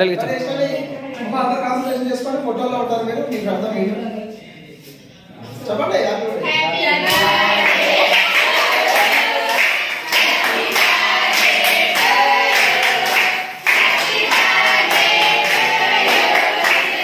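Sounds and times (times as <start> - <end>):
young voices singing together: 6.4 - 17.0
hands clapping along: 7.1 - 17.0.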